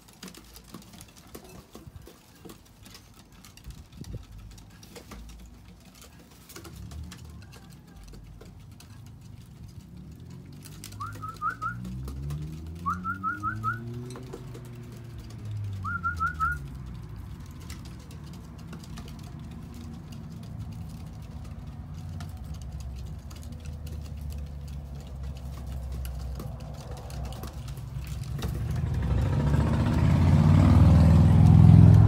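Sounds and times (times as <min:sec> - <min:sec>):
vehicle passing rumble: 0:00.0 - 0:32.0
high whistled chirps: 0:11.0 - 0:11.8, 0:12.9 - 0:13.8.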